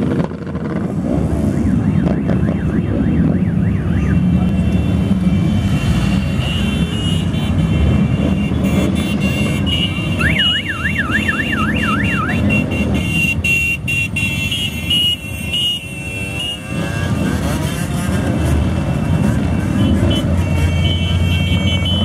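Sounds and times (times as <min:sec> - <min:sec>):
motorcycle engines rumbling: 0:00.0 - 0:22.0
police siren: 0:00.4 - 0:13.0.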